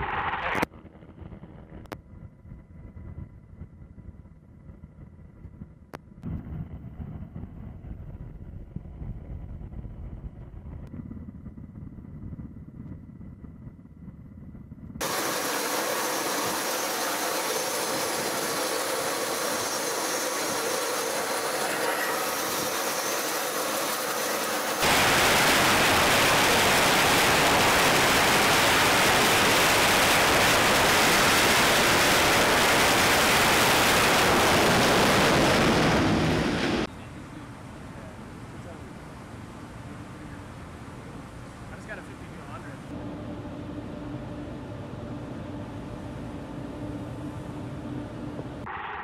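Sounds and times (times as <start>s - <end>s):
low rumble: 0.0s - 15.0s
jet at full power with afterburner: 0.0s - 43.0s, 44.0s - 49.0s
jet engines with turbine whine: 0.0s - 49.0s.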